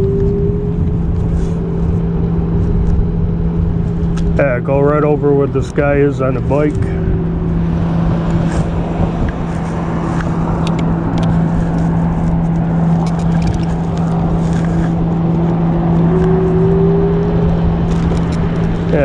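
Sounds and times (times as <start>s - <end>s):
electric scooter motor hum: 0.0s - 19.0s
high motor whine: 0.0s - 19.0s
wind buffeting microphone: 5.4s - 19.0s.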